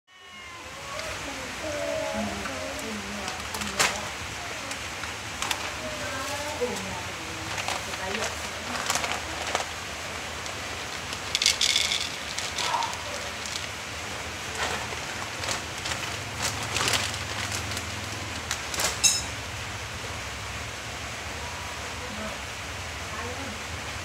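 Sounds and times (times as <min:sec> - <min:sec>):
cat crunching kibble: 0:07.5 - 0:19.0
kibble rattling onto plastic tray: 0:10.5 - 0:13.7.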